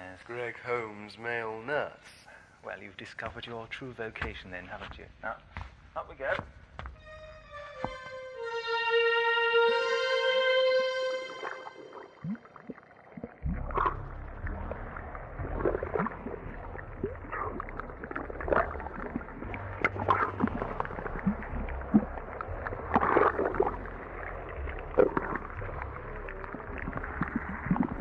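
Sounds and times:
steady low rumble: 13.4s - 28.0s.

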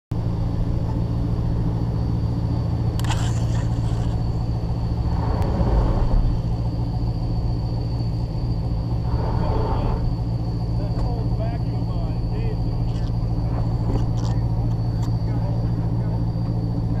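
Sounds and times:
engine idling low: 0.1s - 17.0s
brief crackle: 3.0s - 4.2s.

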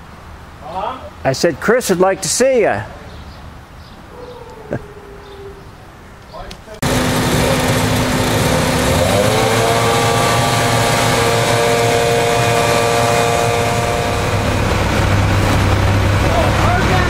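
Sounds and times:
diesel engine revving: 6.8s - 17.0s.

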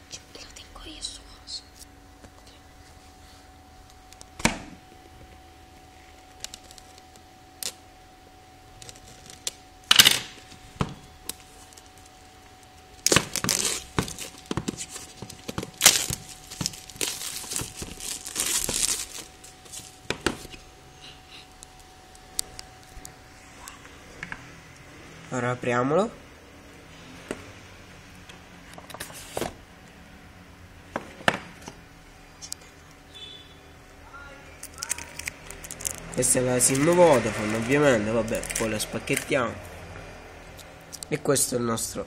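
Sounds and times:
plastic wrap crinkling and tearing: 6.2s - 7.0s, 8.7s - 9.6s, 12.9s - 20.6s, 34.6s - 39.3s
plastic wrap snapping: 6.3s - 7.8s, 8.8s - 10.5s, 13.0s - 20.5s, 34.6s - 39.3s.

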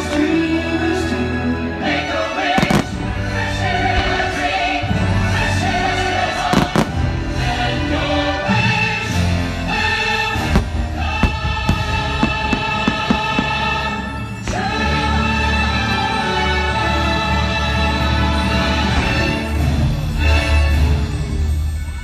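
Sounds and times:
choir singing: 0.0s - 21.4s
fireworks bangs: 10.4s - 14.6s.

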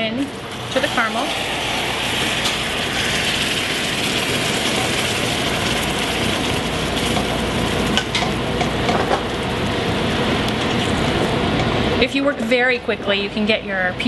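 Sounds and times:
hot caramel sizzling: 0.0s - 12.5s.

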